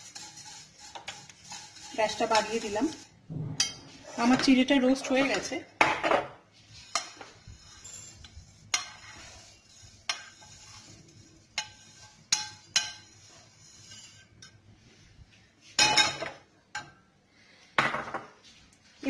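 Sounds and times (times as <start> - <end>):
metal utensil clinking on frying pan: 11.6 - 13.1.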